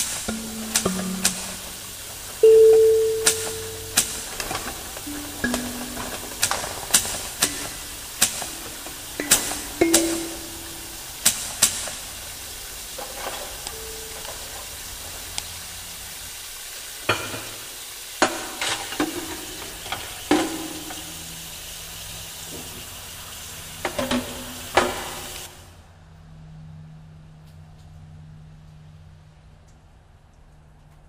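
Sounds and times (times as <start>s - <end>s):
sharp clicks and knocks: 0.0s - 2.0s
crackling hiss: 0.0s - 25.8s
low steady hum: 0.3s - 11.2s, 12.0s - 15.4s
brief low tone: 2.4s - 4.4s.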